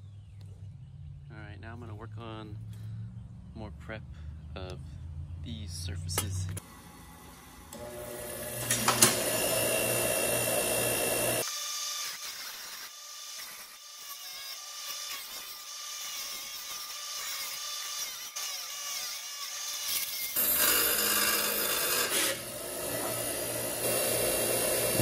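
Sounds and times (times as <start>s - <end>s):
power grinder whining: 6.6s - 25.0s.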